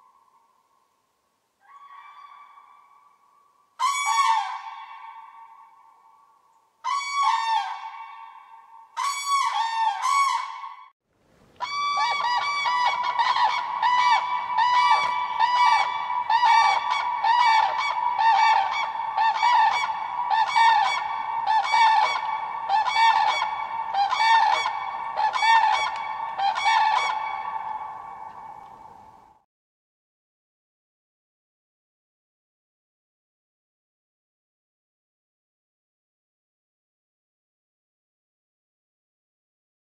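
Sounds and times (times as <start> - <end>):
cranes calling: 1.7 - 10.7, 11.6 - 29.4.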